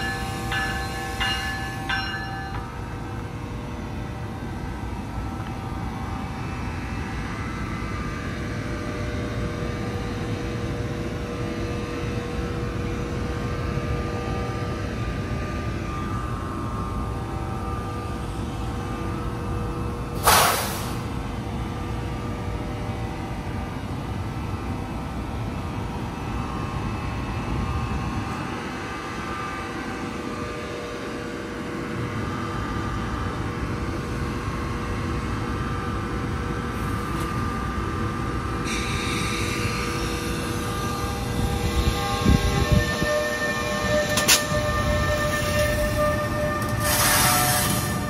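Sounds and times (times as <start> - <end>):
electric locomotive humming: 0.0 - 48.0
hiss of air: 20.2 - 21.1.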